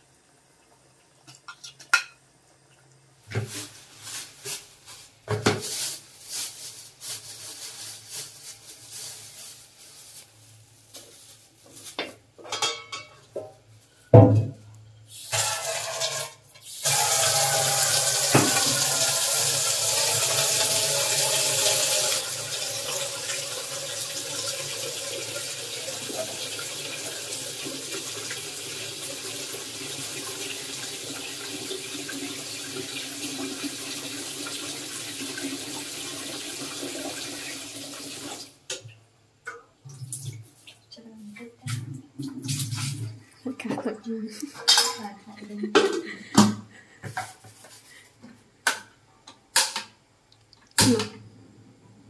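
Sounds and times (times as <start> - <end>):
pots knocking: 12.5 - 13.5
tap running into steel sink: 18.2 - 19.0.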